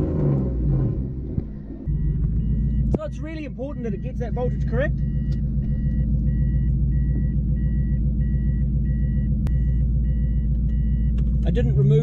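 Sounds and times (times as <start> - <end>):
engine rumble: 0.0 - 12.0
repeating warning beep: 1.9 - 11.2.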